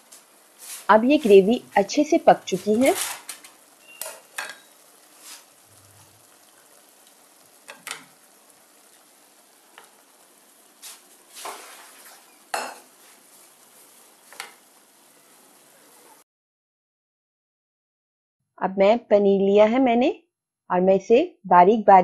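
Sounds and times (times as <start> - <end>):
gravy sizzling in a pan: 0.0 - 16.2
spoon scraping and clicking on pan: 3.0 - 4.8, 7.6 - 8.2, 14.2 - 14.6.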